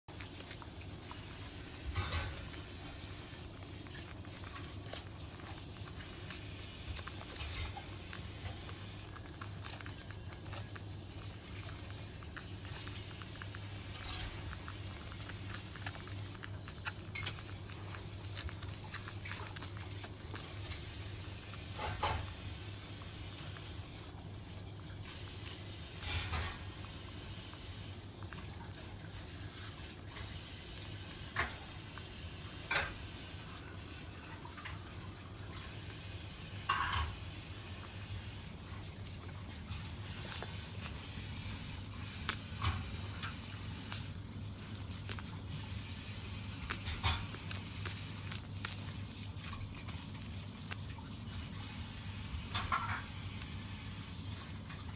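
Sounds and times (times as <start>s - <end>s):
puppies suckling: 0.1s - 54.9s.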